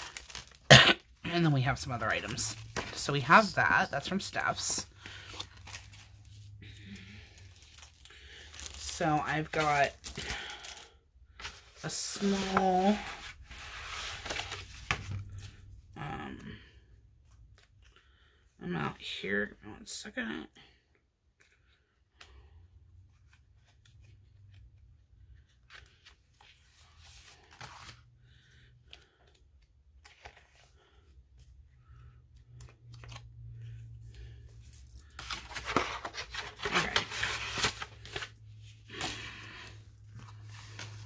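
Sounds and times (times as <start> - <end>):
paper rustling and crinkling: 0.0 - 0.7, 1.6 - 15.6, 23.1 - 41.0.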